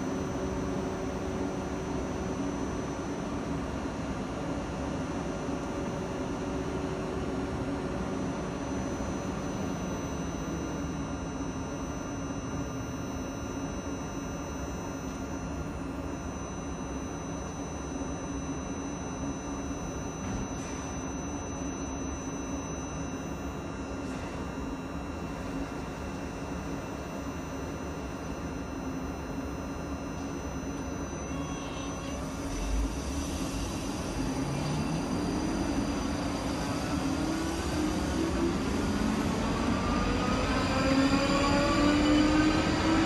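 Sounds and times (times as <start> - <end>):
faint high whine: 0.0 - 43.0.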